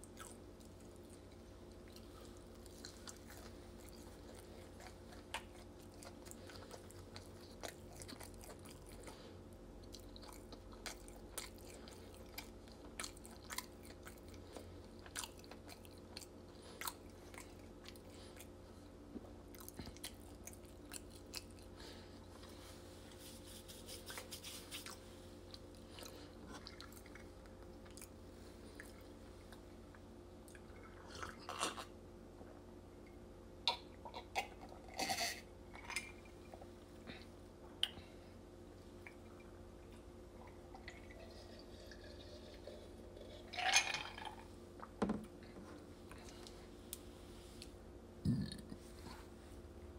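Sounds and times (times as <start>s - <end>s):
close-up chewing: 0.0s - 31.9s
steady low hum: 0.0s - 49.9s.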